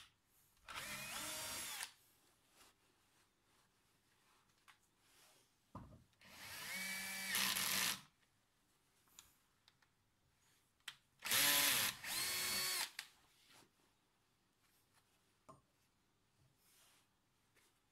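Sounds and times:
drill boring into metal: 0:00.7 - 0:01.9, 0:06.3 - 0:08.0, 0:11.2 - 0:12.9.

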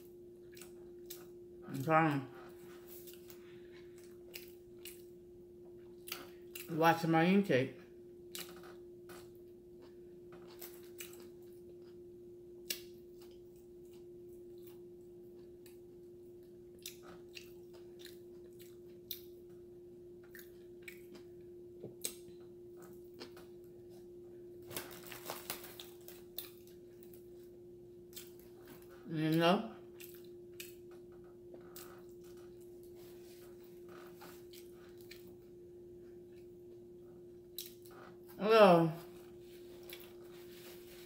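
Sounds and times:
low steady hum: 0:00.0 - 0:41.0
close-mic chewing: 0:00.1 - 0:06.8, 0:08.2 - 0:24.2, 0:24.8 - 0:29.1, 0:29.8 - 0:36.8, 0:37.4 - 0:38.4, 0:39.1 - 0:41.0.

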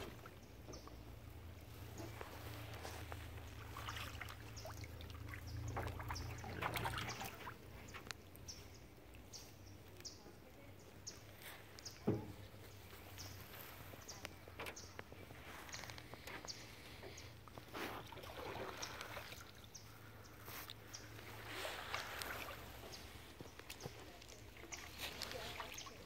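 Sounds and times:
paddle splashing in water: 0:00.0 - 0:09.4, 0:15.3 - 0:26.0
bird chirping: 0:00.0 - 0:17.6.

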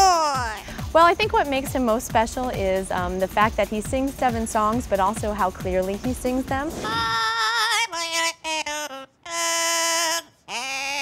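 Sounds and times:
parrot singing: 0:06.8 - 0:11.0.

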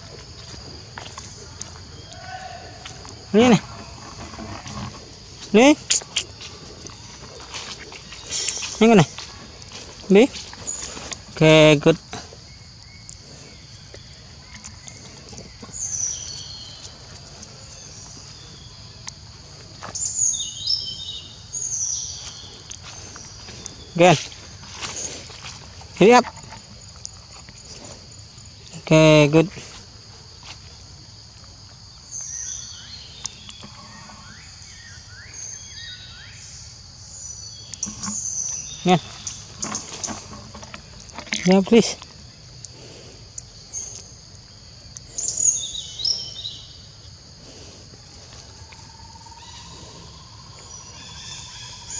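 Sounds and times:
birds calling: 0:00.0 - 0:30.4, 0:31.9 - 0:51.9
high insect drone: 0:00.0 - 0:51.9
high background hiss: 0:04.9 - 0:14.2, 0:41.4 - 0:51.9
faint ticks: 0:12.8 - 0:13.2.

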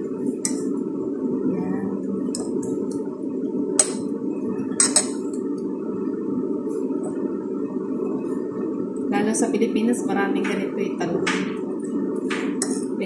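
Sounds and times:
steady low hum: 0:00.0 - 0:13.0
spoon clinking against ceramic bowl: 0:04.8 - 0:05.2.

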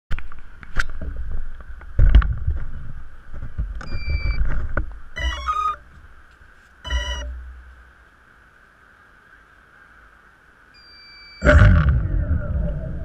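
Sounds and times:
steady electronic beep: 0:05.2 - 0:05.8, 0:06.9 - 0:07.4, 0:10.8 - 0:11.5
stepped electronic start-up tones: 0:05.2 - 0:05.8, 0:06.9 - 0:07.4.

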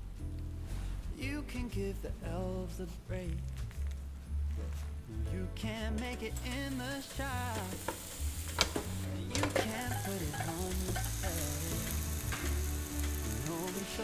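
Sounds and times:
sandwich sizzling on a grill: 0:06.3 - 0:14.0.

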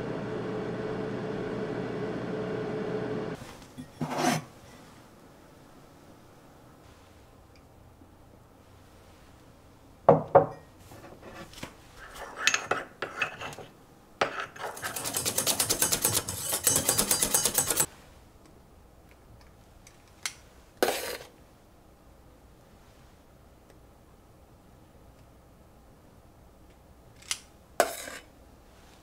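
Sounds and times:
tableware clinks: 0:10.3 - 0:10.7
spoon stirring in ceramic cup: 0:12.1 - 0:17.9.

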